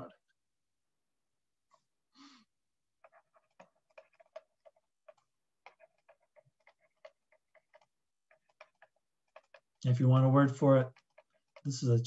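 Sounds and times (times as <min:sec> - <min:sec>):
stylus tapping on tablet: 0:03.0 - 0:12.0.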